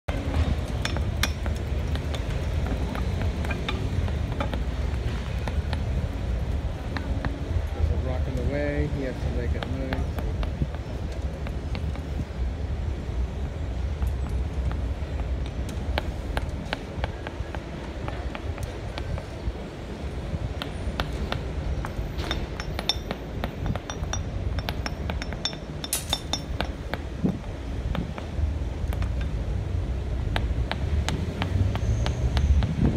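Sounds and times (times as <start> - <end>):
steady low rumble: 0.1 - 31.7
hand hammers tapping stone: 0.8 - 5.9, 9.5 - 12.0, 14.7 - 19.3, 20.6 - 29.3, 30.2 - 32.8
stone setts clinking: 22.2 - 26.8.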